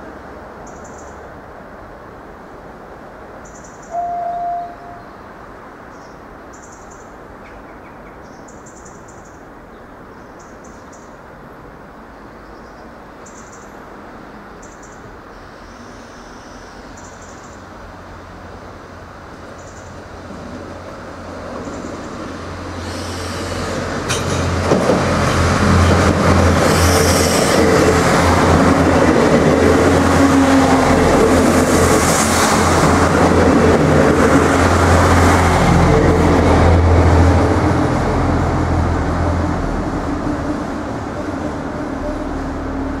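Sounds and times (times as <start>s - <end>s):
train engine: 17.7s - 43.0s
train wheels on rails: 20.2s - 43.0s.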